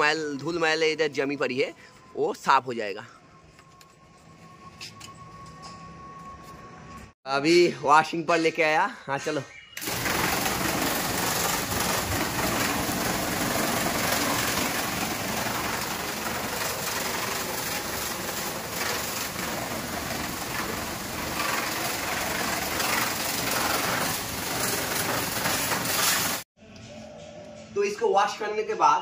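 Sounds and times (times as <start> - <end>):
pressure washer jet hissing: 9.8 - 26.4
pump motor running: 9.8 - 26.4.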